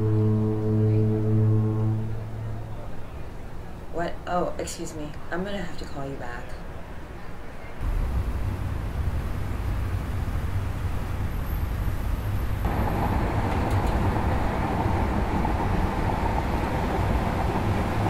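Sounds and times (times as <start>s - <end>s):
low traffic rumble: 0.0s - 5.3s, 7.8s - 18.0s
van road and engine noise: 7.8s - 18.0s.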